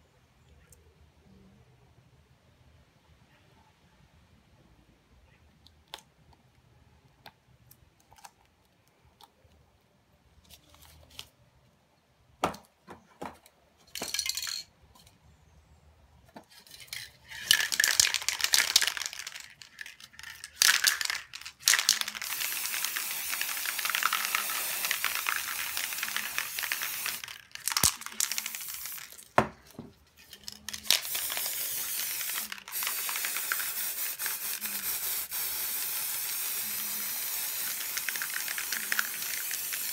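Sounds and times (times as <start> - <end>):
spray paint can hissing: 17.4 - 29.3, 30.2 - 39.9
spray can clicks: 20.6 - 29.2, 30.7 - 39.9.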